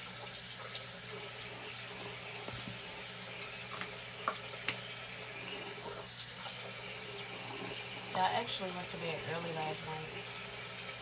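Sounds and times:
tap water splashing into basin: 0:02.3 - 0:05.0.

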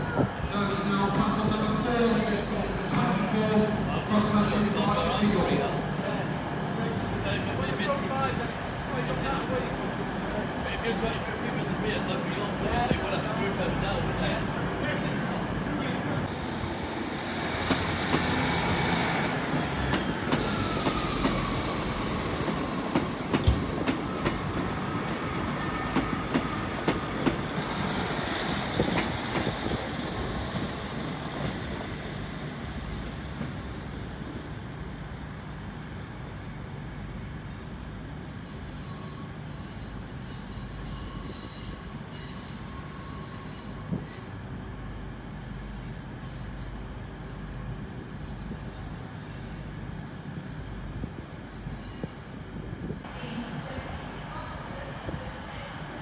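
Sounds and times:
train flange squeal: 0:02.2 - 0:12.5, 0:13.1 - 0:16.3, 0:18.4 - 0:33.2, 0:37.4 - 0:50.3, 0:51.5 - 0:52.6.

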